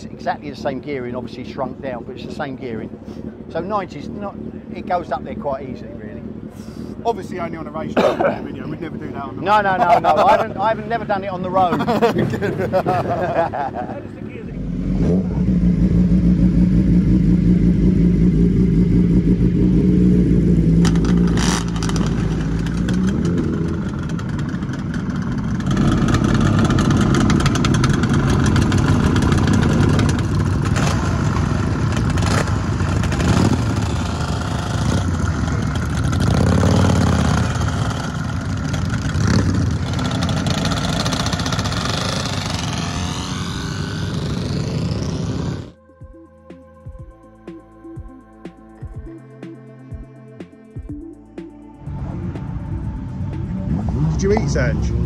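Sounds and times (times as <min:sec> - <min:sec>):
two-stroke scooter engine revving: 0:14.4 - 0:45.8.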